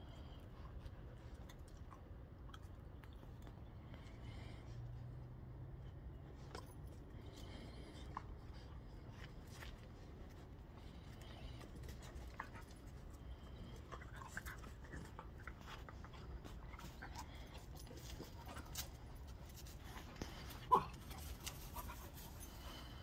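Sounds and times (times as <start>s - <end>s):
dogs panting: 0.0s - 23.0s
light clicks and scuffs: 14.3s - 23.0s.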